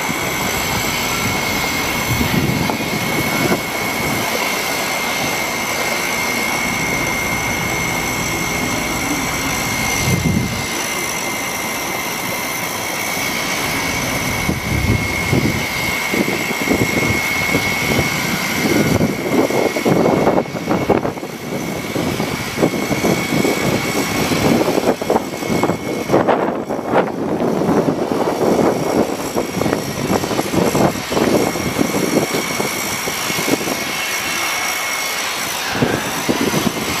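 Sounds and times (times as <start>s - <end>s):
engine running with high whine: 0.0s - 37.0s
low rumbling surges: 0.0s - 37.0s.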